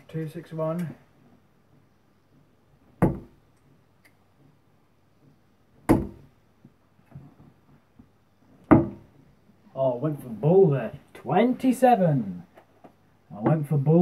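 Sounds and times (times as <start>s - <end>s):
darts thudding into dartboard: 3.0s - 3.4s, 5.9s - 6.3s, 8.6s - 9.0s.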